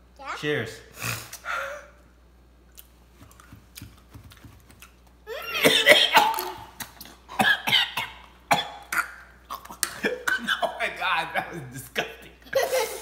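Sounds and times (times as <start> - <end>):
person gagging and coughing: 5.3 - 11.0.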